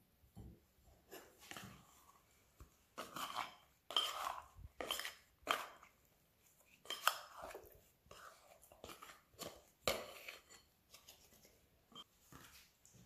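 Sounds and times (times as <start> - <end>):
spatula scraping glass bowl: 3.0 - 6.0, 6.6 - 10.8.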